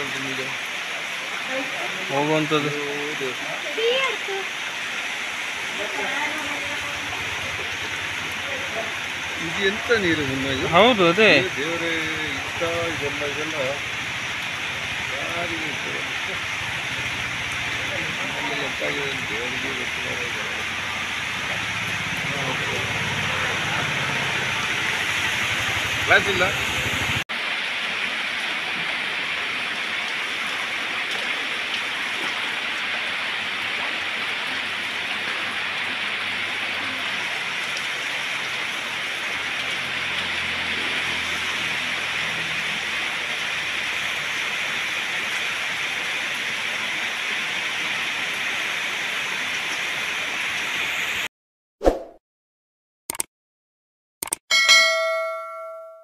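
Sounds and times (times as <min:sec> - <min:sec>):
flowing floodwater: 0:00.0 - 0:51.3
heavy rain: 0:00.0 - 0:51.3
short chime: 0:54.5 - 0:56.0.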